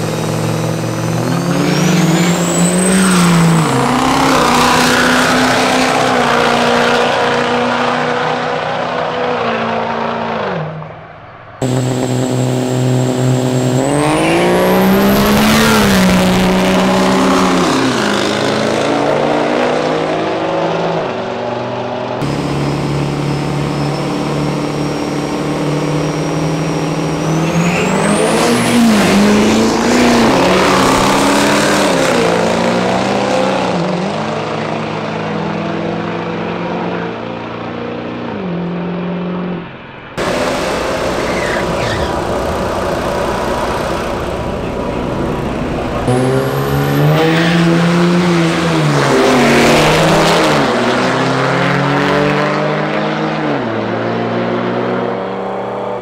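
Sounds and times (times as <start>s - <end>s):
turbo whine: 0.0s - 4.9s, 11.6s - 18.0s, 22.2s - 32.3s, 40.2s - 48.0s
diesel truck engine revving: 0.0s - 10.5s, 11.6s - 20.4s, 22.2s - 34.3s, 40.2s - 52.9s.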